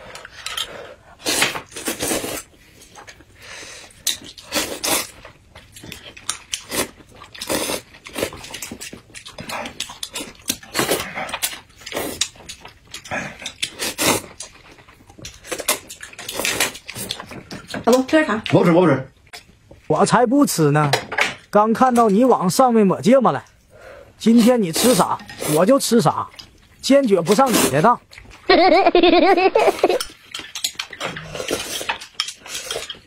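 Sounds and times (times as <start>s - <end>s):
chewing and mouth noises: 1.7s - 18.6s, 26.2s - 26.8s, 28.0s - 28.5s, 29.9s - 33.0s.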